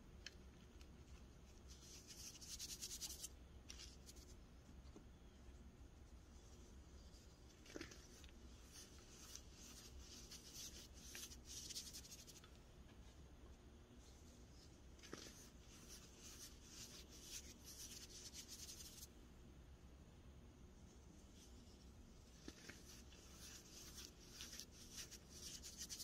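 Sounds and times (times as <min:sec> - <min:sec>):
crushing powder between fingers: 0:06.1 - 0:12.6, 0:14.7 - 0:19.1, 0:21.3 - 0:26.0.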